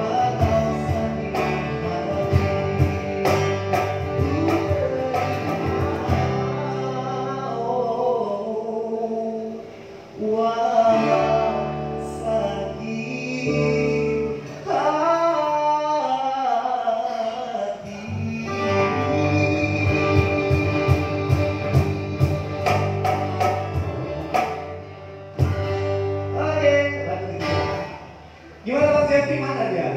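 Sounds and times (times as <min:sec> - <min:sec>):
man singing pop ballad: 0:00.0 - 0:22.7
acoustic guitar: 0:00.0 - 0:29.9
cajon strikes: 0:00.4 - 0:06.4, 0:19.8 - 0:24.8
steady low bass line: 0:18.1 - 0:29.9.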